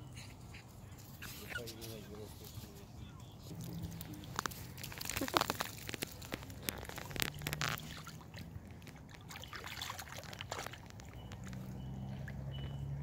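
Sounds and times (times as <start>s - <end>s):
dog sloshing in shallow water: 3.5s - 13.0s.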